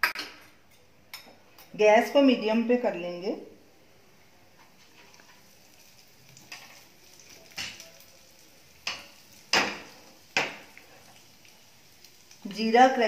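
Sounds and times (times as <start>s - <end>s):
seeds sizzling in oil: 4.1s - 13.0s.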